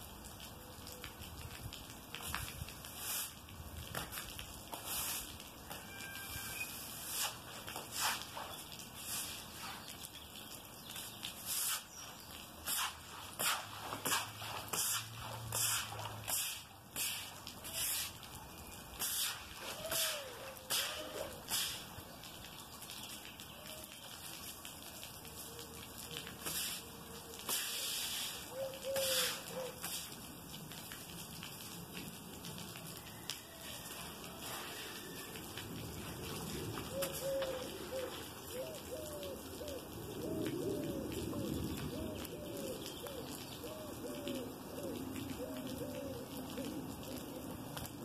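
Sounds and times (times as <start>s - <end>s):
pool brush scrubbing plaster: 2.9s - 3.4s, 4.0s - 5.6s, 6.4s - 10.0s, 11.3s - 18.3s, 19.0s - 22.0s, 26.3s - 30.2s
dove cooing: 19.6s - 21.4s, 28.4s - 29.9s, 36.3s - 47.8s
steady background hiss: 26.3s - 31.1s.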